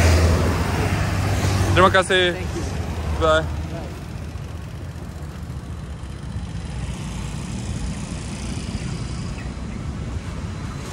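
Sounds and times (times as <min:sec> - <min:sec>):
scooters and cars idling and passing: 0:00.0 - 0:10.9.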